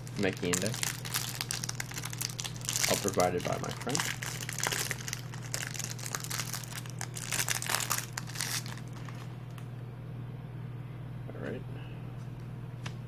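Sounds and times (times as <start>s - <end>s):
plastic wrapping crinkling: 0.0s - 9.3s
low electrical hum: 0.0s - 13.0s.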